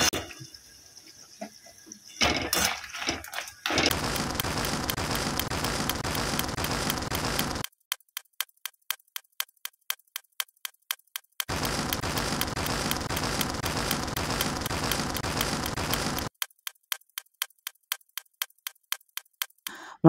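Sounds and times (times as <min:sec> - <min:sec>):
steady ticking: 0:02.3 - 0:19.8.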